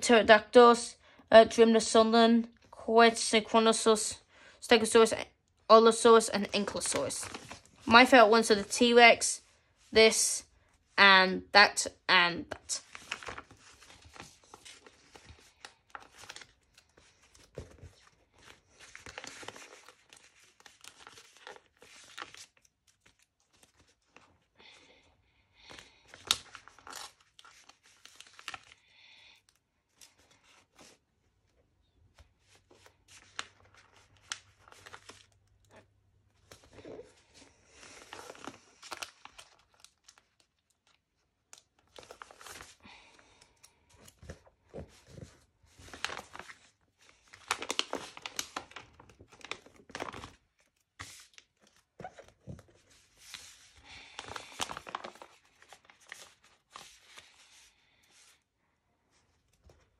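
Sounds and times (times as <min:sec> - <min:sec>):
paper sticker sheet rustling: 0:44.0 - 0:58.4.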